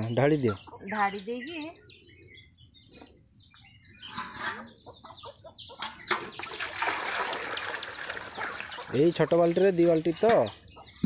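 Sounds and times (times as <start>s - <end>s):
hen clucking: 0.0s - 2.4s, 3.0s - 6.6s, 8.2s - 11.0s
water pouring and splashing: 6.1s - 9.8s.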